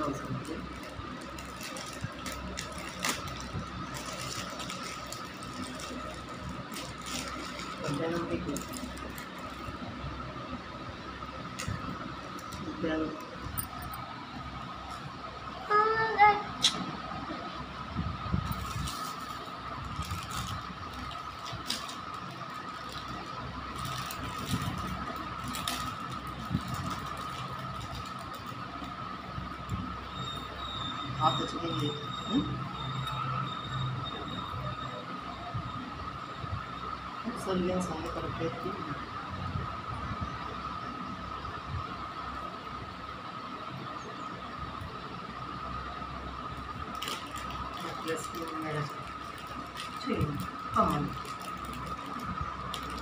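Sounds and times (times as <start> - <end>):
high-pitched whine: 0.0 - 53.0
steady humming tone: 0.0 - 53.0
plastic sleeves crinkling and clicking: 0.5 - 9.7, 18.5 - 29.0, 46.9 - 53.0.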